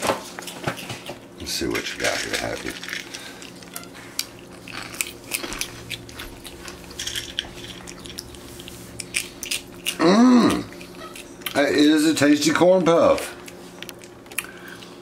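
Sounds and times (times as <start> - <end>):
monkey chewing crunchy food: 0.4 - 11.7.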